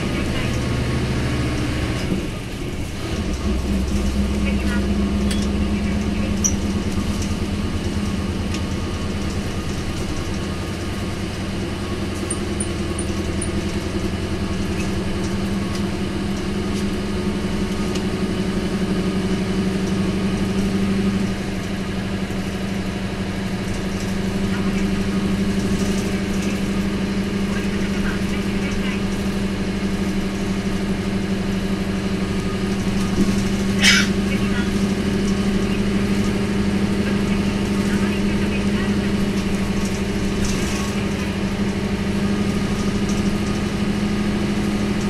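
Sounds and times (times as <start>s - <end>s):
bus diesel engine droning uphill: 0.0s - 45.0s.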